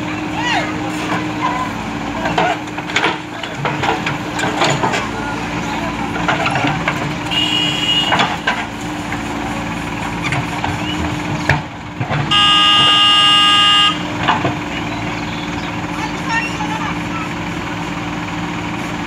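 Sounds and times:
diesel engine running: 0.0s - 19.0s
vehicle horn: 7.2s - 8.5s, 12.2s - 14.2s.

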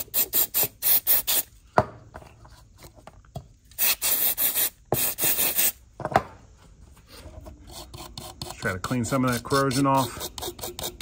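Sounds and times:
aerosol can spraying: 0.0s - 1.5s, 3.7s - 5.8s.

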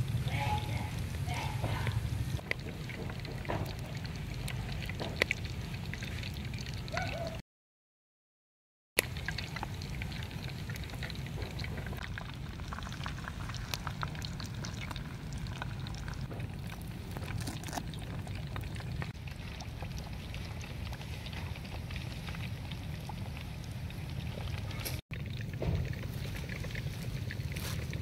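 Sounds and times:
batter sizzling in hot oil: 9.0s - 28.0s.

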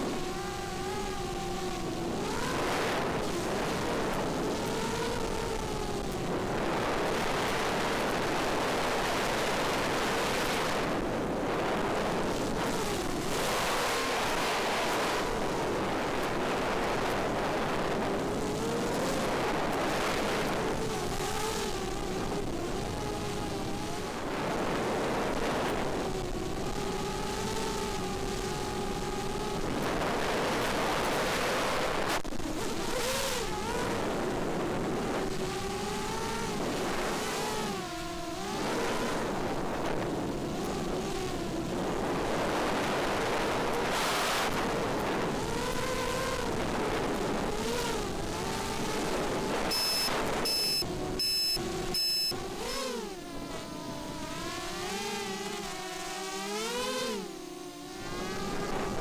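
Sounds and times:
quadcopter motors whining: 47.5s - 59.0s.

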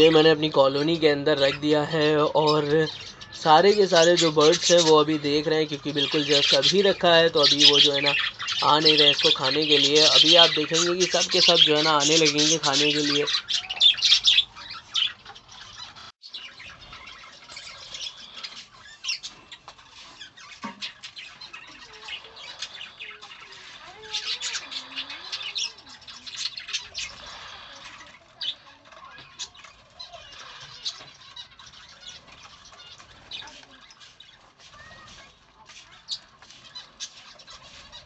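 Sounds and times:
budgerigars chattering: 0.0s - 38.0s.

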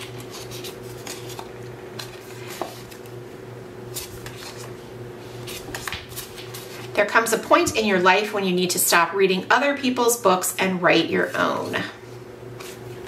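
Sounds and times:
cards clicking and rustling: 0.0s - 3.2s, 3.9s - 4.8s, 5.4s - 7.0s, 12.6s - 13.0s.

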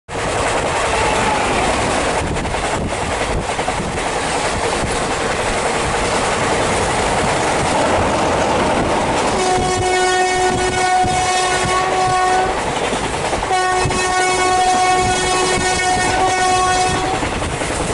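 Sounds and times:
train wheels rushing: 0.1s - 17.9s
locomotive horn blast: 9.3s - 12.6s, 13.5s - 17.2s.

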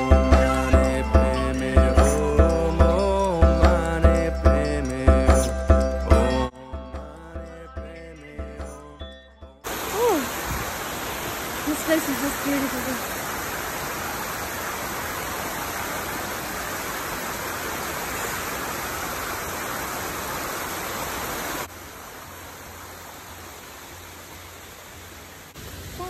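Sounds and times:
stream tumbling over rocks: 9.6s - 26.0s.

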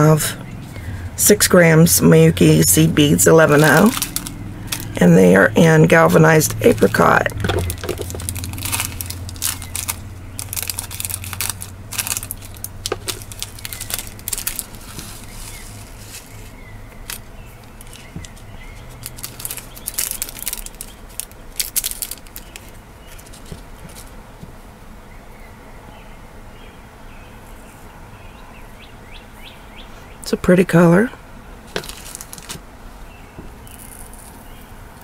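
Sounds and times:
plastic bag crinkling: 2.7s - 24.2s, 31.7s - 32.6s
beads clicking into palm: 3.7s - 5.0s.

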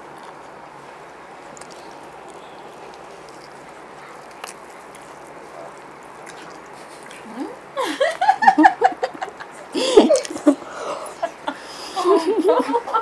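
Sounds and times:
faint steady hiss: 0.0s - 13.0s
women laughing: 7.4s - 13.0s.

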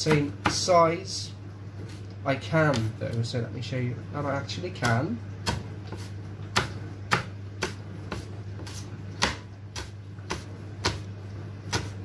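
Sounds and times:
knife chopping on wooden board: 0.0s - 0.7s, 4.8s - 11.1s, 11.7s - 12.0s
steady low hum: 0.0s - 12.0s.

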